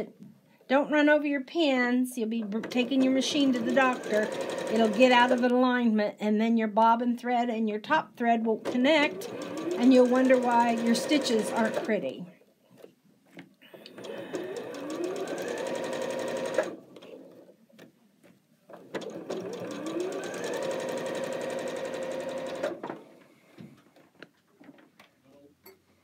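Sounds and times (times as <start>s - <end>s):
electric sewing machine stitching: 2.6s - 5.5s, 8.6s - 12.1s, 13.8s - 17.5s, 18.8s - 22.9s.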